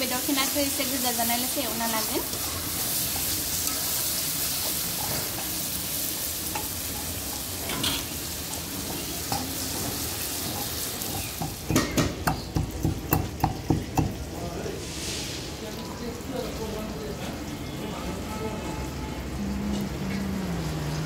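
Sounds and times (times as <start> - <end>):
chicken sizzling in hot oil: 0.0 - 19.9
pestle pounding peppercorns: 9.7 - 14.3.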